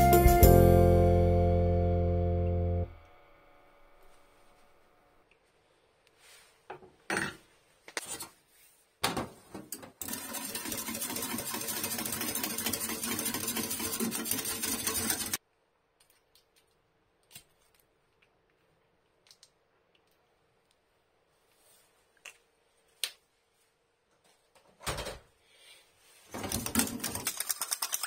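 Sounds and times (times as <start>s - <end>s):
whisk rattling in metal cup: 10.0s - 15.4s, 26.4s - 28.0s.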